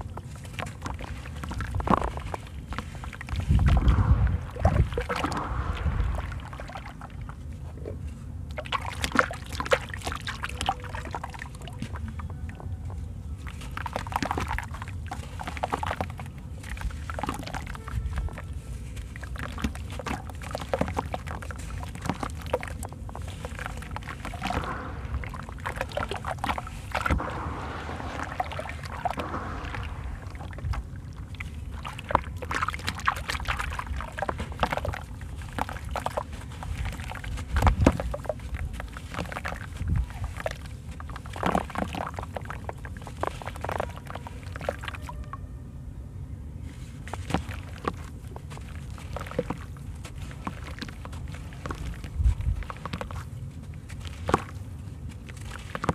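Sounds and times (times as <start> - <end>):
steady low rumble: 0.0 - 44.6, 45.3 - 55.8
gritty lumps crunching: 0.0 - 45.0, 46.8 - 55.9
grains splashing into water: 0.5 - 7.4, 18.4 - 45.2.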